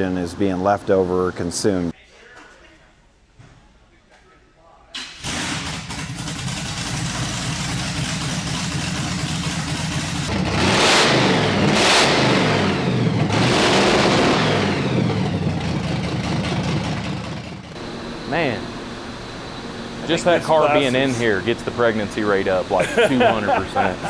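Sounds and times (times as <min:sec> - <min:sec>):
car engine idling and revving: 0:05.2 - 0:22.7.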